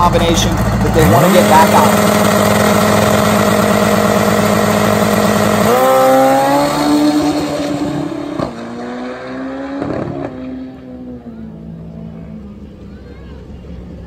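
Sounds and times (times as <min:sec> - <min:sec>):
drag bike engine revving: 0:00.0 - 0:11.0.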